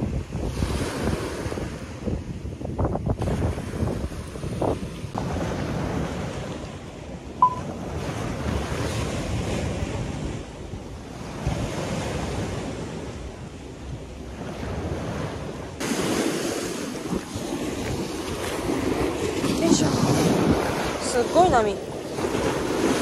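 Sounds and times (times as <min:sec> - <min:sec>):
waves washing onto beach: 0:00.0 - 0:23.0
wind buffeting microphone: 0:00.0 - 0:23.0
high beep: 0:07.4 - 0:07.7.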